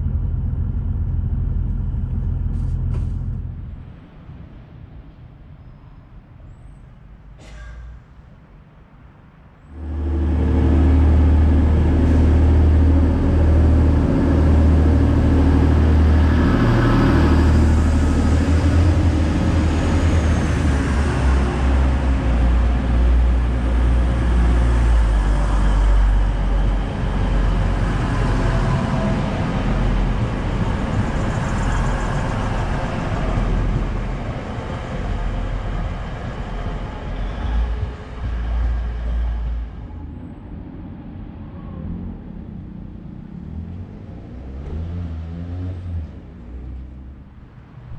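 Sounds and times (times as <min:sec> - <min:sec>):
diesel train engines: 0:00.0 - 0:44.8.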